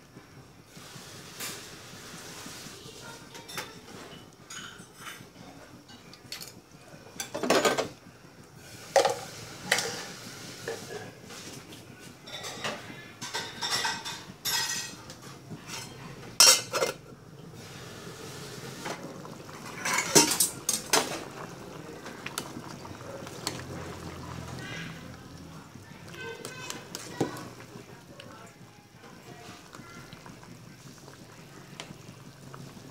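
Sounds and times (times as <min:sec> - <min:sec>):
ladle scraping metal pot: 0:18.4 - 0:21.5.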